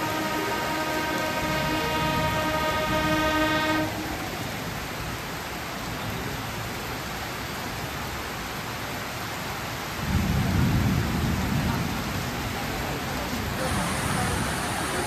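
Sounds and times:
train rumble: 0:00.0 - 0:05.3, 0:10.5 - 0:15.0
heavy rain: 0:00.0 - 0:15.0.

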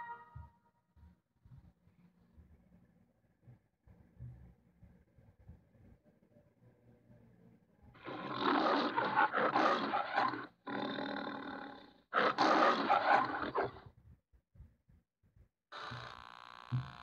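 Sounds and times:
lion roaring: 0:08.0 - 0:13.8.

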